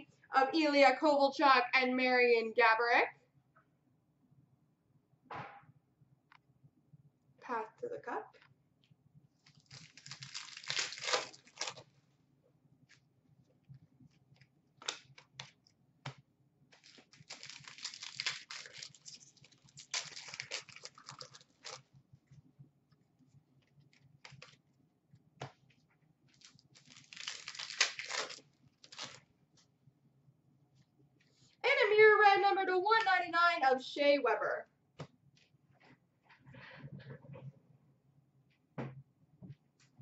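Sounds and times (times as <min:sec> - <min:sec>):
card wrappers tearing and crinkling: 0:09.4 - 0:11.9, 0:16.8 - 0:21.8, 0:26.3 - 0:29.2
papery rustling of cards: 0:09.4 - 0:11.9, 0:16.8 - 0:21.8, 0:26.3 - 0:29.2.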